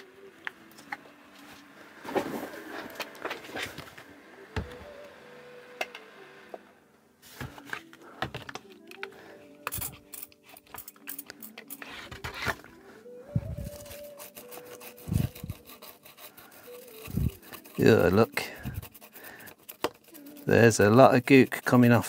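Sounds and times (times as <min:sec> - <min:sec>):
toothbrush scrubbing circuit board: 0:13.7 - 0:22.0.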